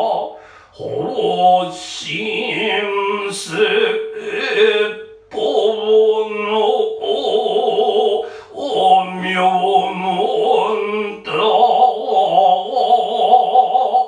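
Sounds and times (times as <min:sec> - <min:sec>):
person chanting: 0:00.0 - 0:14.0.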